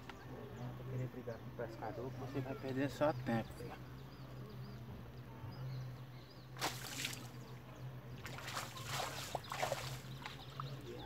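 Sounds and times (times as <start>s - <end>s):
water splashing: 6.6s - 7.4s, 8.2s - 11.0s.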